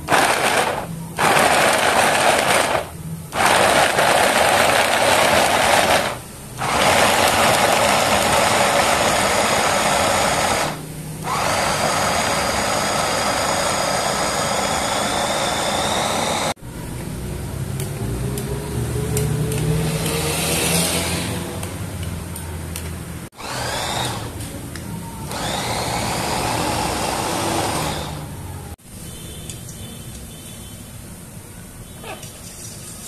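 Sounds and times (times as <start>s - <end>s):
electric food chopper whirring: 0.0s - 16.6s, 23.4s - 24.5s, 25.3s - 28.4s.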